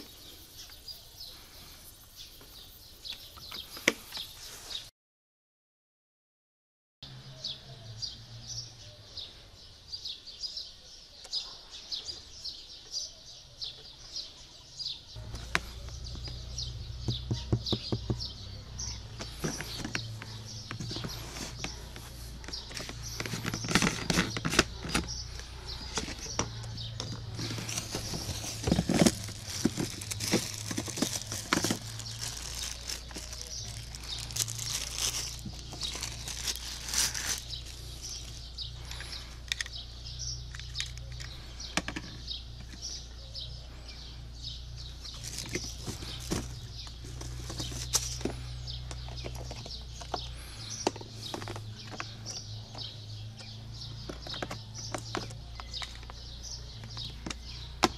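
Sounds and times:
plastic wrapping crinkling: 0:19.3 - 0:25.1, 0:27.0 - 0:38.5, 0:45.1 - 0:48.3.

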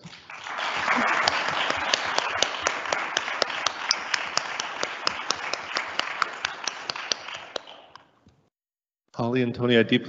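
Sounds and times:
audience applauding: 0:00.0 - 0:08.1
sharp single claps: 0:01.3 - 0:08.1.

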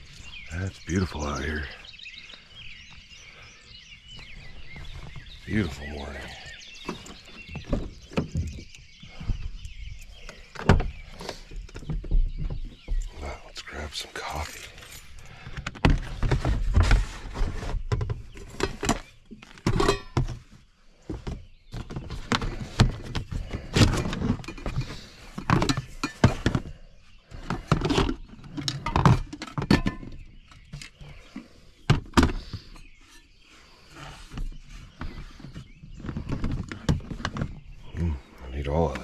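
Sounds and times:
cookware thunks and clinks: 0:19.7 - 0:20.3.

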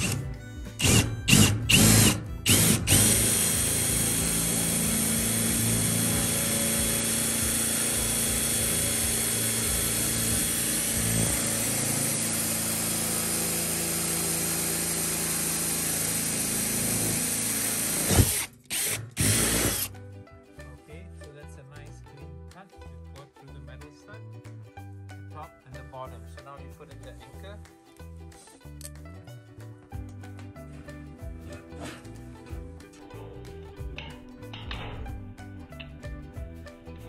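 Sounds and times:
drill boring through metal: 0:00.0 - 0:19.9.

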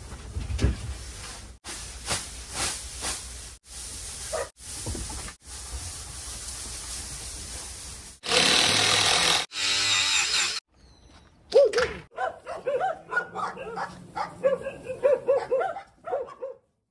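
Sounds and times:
cordless drill running: 0:08.2 - 0:10.6
dogs barking: 0:11.6 - 0:16.7.

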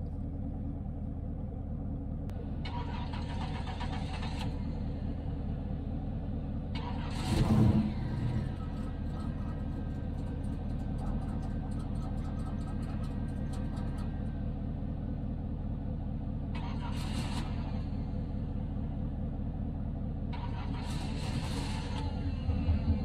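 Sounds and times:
steady low rumble: 0:00.0 - 0:23.0
engine cranking on starter: 0:02.6 - 0:04.7, 0:06.7 - 0:08.5, 0:16.6 - 0:17.7, 0:20.3 - 0:22.1
engine catching with burst: 0:16.5 - 0:18.1, 0:20.3 - 0:23.0.

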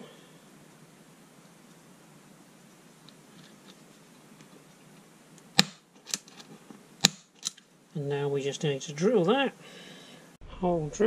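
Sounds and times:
faint scratching: 0:02.6 - 0:05.1.

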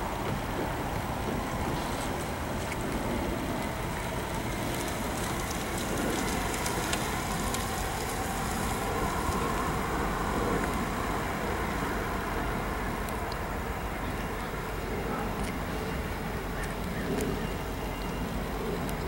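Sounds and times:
train wheels rumbling on rail: 0:00.0 - 0:13.8.

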